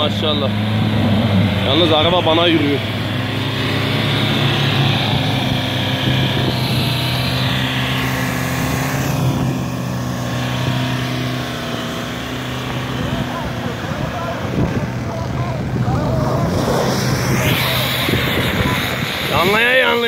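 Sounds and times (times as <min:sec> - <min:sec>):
truck engine running under load: 0:00.0 - 0:20.0.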